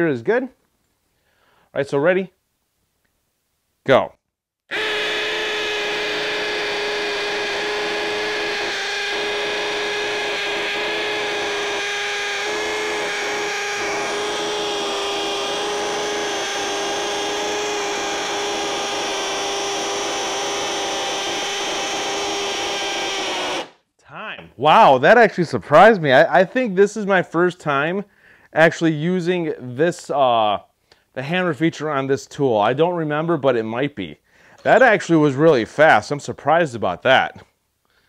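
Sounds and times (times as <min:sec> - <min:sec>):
hammer drill boring into concrete: 0:04.7 - 0:23.8.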